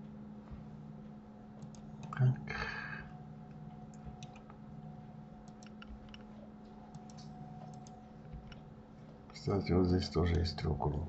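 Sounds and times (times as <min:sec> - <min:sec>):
steady low hum: 0:00.0 - 0:11.0
mouse and keyboard clicks: 0:03.9 - 0:04.6, 0:05.5 - 0:06.3, 0:06.9 - 0:08.6.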